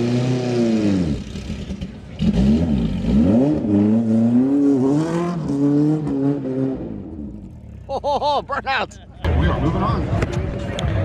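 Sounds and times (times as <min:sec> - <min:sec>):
race car engine revving: 0:00.0 - 0:07.8.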